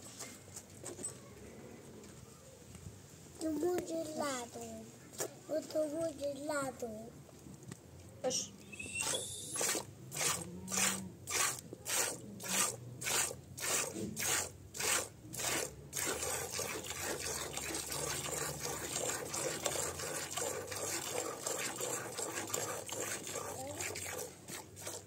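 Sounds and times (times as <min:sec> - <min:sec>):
milk squirting into metal bowl: 0:09.0 - 0:25.0.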